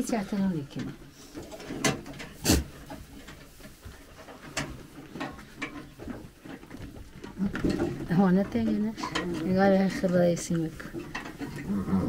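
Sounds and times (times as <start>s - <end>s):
wire and wood clicking and knocking: 0.8s - 11.7s.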